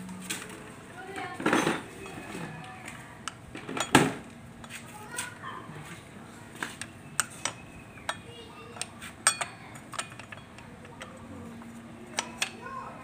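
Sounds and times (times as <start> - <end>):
metallic clicks of brake parts: 6.6 - 12.6.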